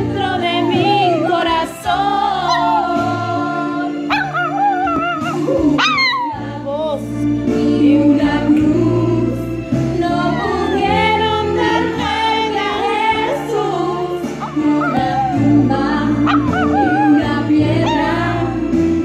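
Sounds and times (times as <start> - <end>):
person singing a song: 0.0 - 19.0
puppy howling: 2.1 - 6.6, 10.1 - 18.5.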